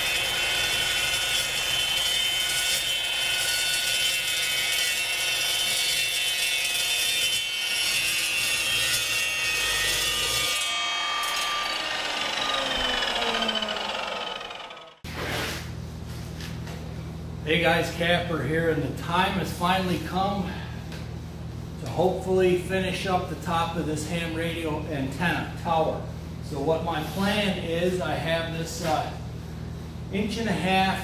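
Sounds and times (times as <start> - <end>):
chop saw cutting steel pipe: 0.0 - 15.1.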